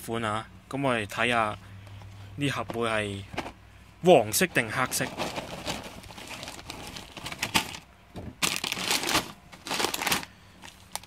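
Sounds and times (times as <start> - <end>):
plastic packet crinkling: 4.8 - 11.0.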